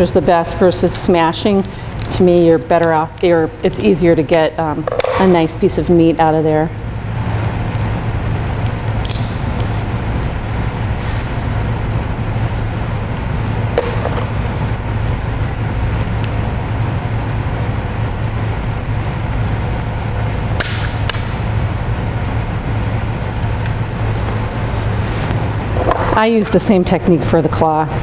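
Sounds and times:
low background hum: 0.0 - 28.0
lobster shell snapping: 8.6 - 9.7.

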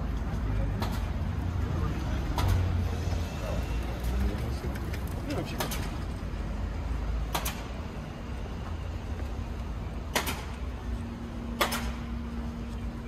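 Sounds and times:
low traffic rumble: 0.0 - 13.0
sharp clicks or knocks: 7.3 - 7.7, 10.1 - 10.6, 11.6 - 12.0.

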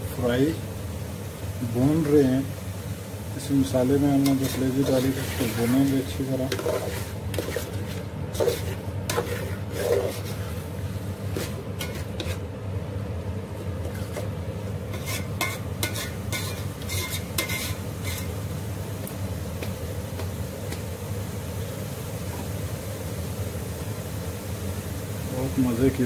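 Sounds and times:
faint sizzling: 0.0 - 26.0
metal spoon scraping a metal pot: 6.5 - 10.5, 11.3 - 12.4, 14.9 - 18.3.

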